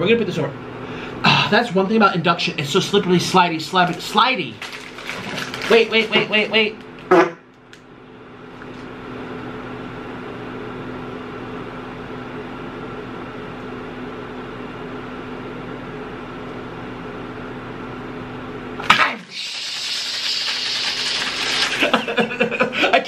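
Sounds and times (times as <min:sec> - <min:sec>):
induction cooktop humming: 0:00.0 - 0:23.0.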